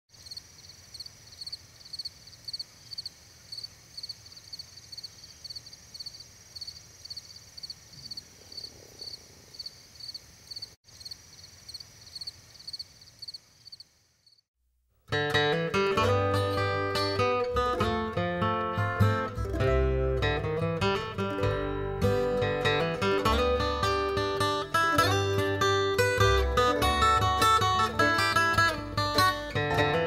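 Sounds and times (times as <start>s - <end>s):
insects chirping: 0.1s - 14.5s
high insect drone: 0.2s - 14.4s.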